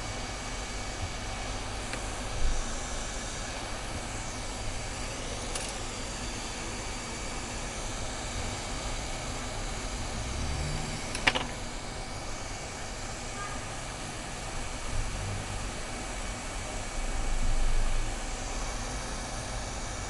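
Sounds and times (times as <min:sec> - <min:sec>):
hot-air gun hissing: 0:00.0 - 0:10.1.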